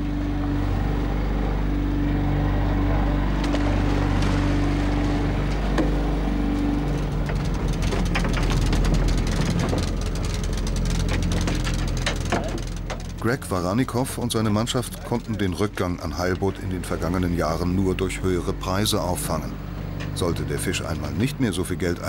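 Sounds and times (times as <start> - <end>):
boat engine running: 0.0 - 22.0
hauling gear clicking and rattling: 3.5 - 16.5.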